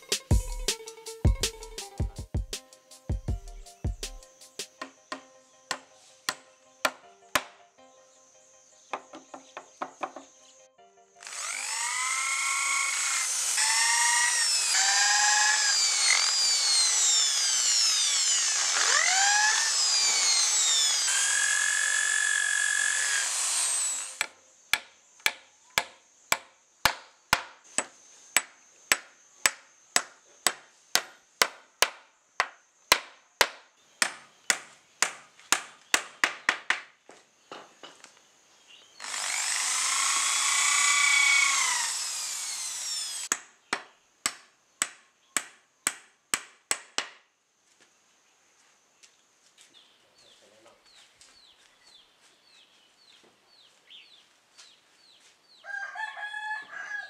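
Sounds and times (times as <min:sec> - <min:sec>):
electric drill boring into wood: 0:11.2 - 0:24.4, 0:39.0 - 0:43.3
hammer driving nails into wood: 0:24.1 - 0:36.9, 0:43.0 - 0:47.2.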